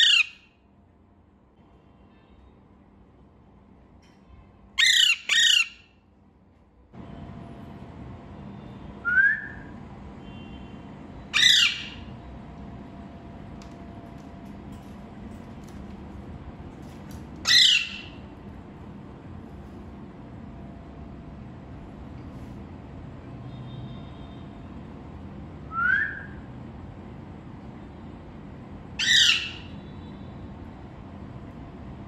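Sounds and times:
parakeet squawking: 0:00.0 - 0:00.5, 0:04.8 - 0:05.9, 0:11.3 - 0:12.1, 0:17.4 - 0:18.3, 0:29.0 - 0:29.8
steady background hum: 0:00.0 - 0:32.0.

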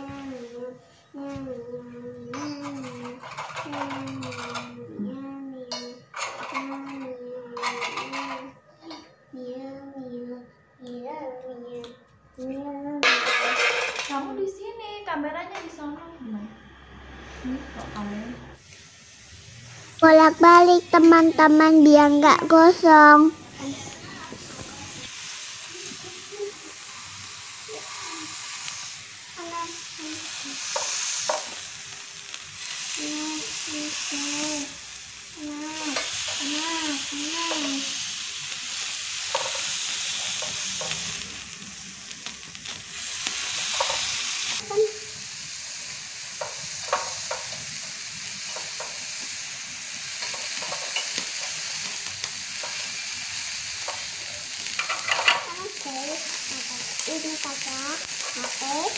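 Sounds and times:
meat sizzling on grill: 0:00.0 - 0:08.6, 0:13.0 - 0:14.5, 0:16.8 - 0:58.9
wooden skewers clicking on grate: 0:02.4 - 0:04.8, 0:30.7 - 0:31.6, 0:39.2 - 0:41.2, 0:42.2 - 0:44.2, 0:46.3 - 0:47.7, 0:48.4 - 0:49.1, 0:50.1 - 0:52.9, 0:53.8 - 0:55.6.

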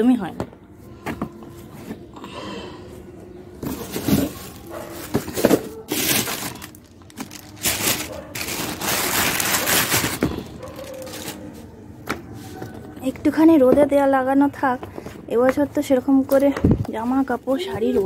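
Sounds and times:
plastic bags rustling: 0:03.5 - 0:11.8.

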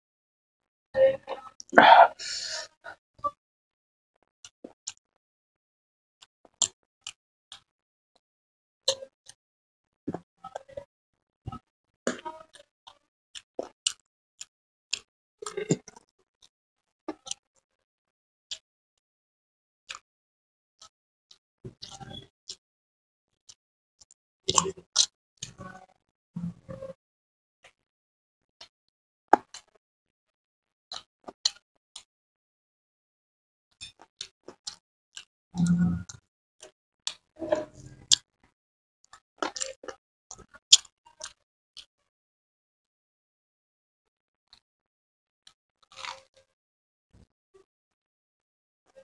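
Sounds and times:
mouth chewing clicks and smacks: 0:45.9 - 0:46.3.

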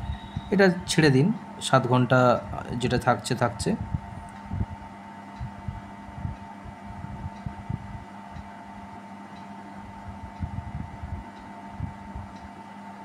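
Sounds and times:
steady background hum: 0:00.0 - 0:13.0.

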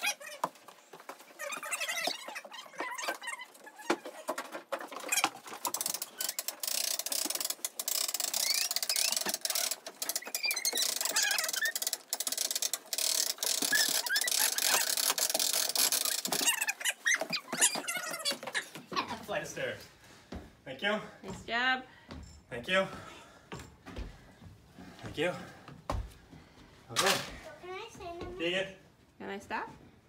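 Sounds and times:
short high squeaks: 0:01.3 - 0:04.2, 0:07.9 - 0:18.8
winch ratchet clicking: 0:06.2 - 0:16.3.

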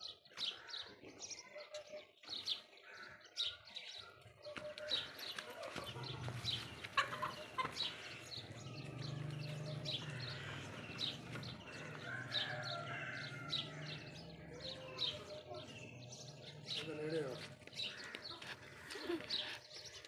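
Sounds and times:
hen-like clucking and warbling: 0:04.6 - 0:12.0.

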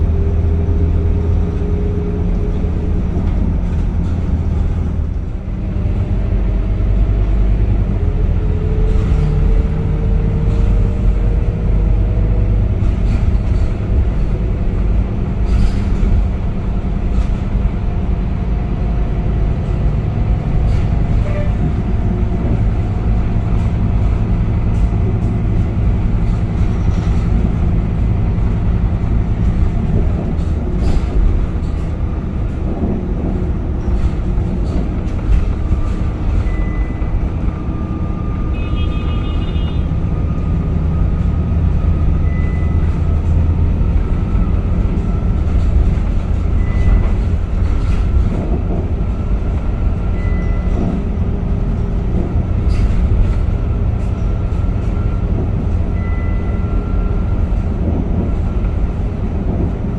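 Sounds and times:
bus diesel engine drone: 0:00.0 - 0:59.9
rattles and clicks: 0:19.4 - 0:37.7, 0:42.8 - 0:56.1
short beep: 0:42.2 - 0:42.8.

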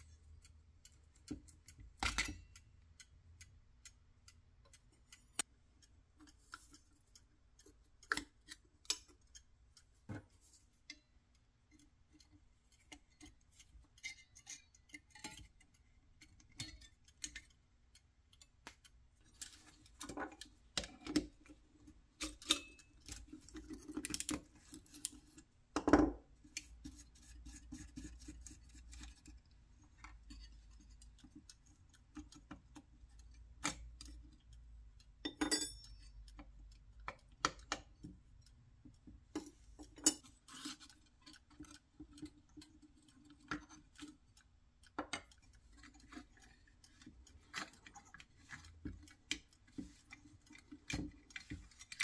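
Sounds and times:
small metal parts clicking: 0:11.7 - 0:25.5, 0:39.3 - 0:52.0.

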